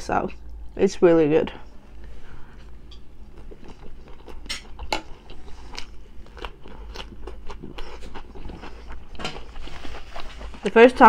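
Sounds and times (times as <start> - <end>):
chewing mouth sounds: 3.3 - 10.6
crunching cucumber: 3.4 - 10.6.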